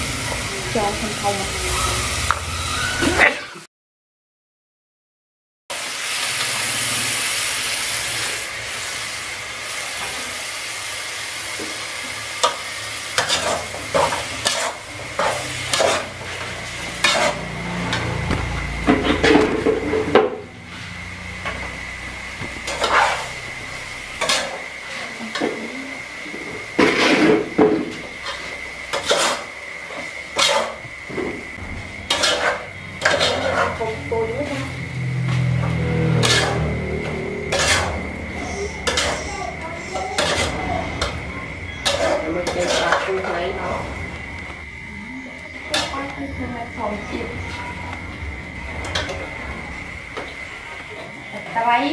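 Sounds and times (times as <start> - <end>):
snails sizzling in a pot: 0.0 - 2.8, 5.7 - 51.9
metal spatula scraping a pot: 13.2 - 18.2, 22.7 - 23.4, 26.8 - 27.5, 28.2 - 29.5, 30.3 - 30.8, 32.0 - 43.7.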